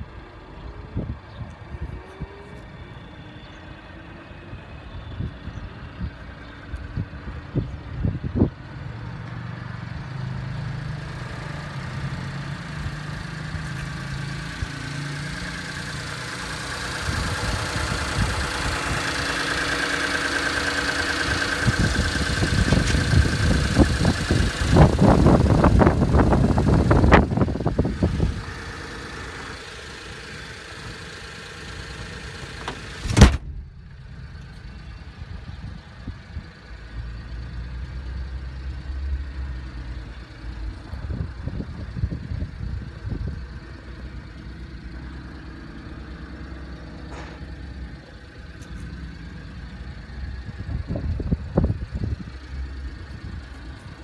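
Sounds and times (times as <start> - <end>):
truck engine idling with whine: 0.0 - 54.0
sharp thump: 32.6 - 33.9, 47.1 - 47.5.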